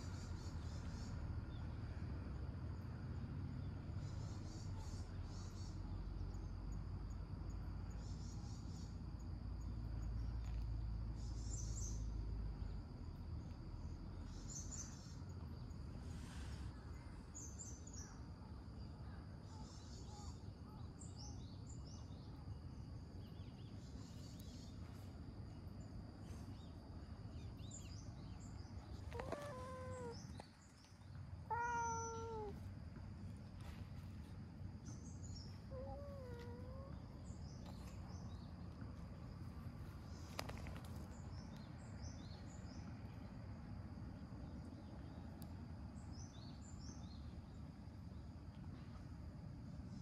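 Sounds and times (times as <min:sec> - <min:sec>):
high insect drone: 0:00.0 - 0:50.0
small birds chirping: 0:03.2 - 0:49.1
cat meowing: 0:29.1 - 0:30.4, 0:31.5 - 0:32.7, 0:35.7 - 0:37.0.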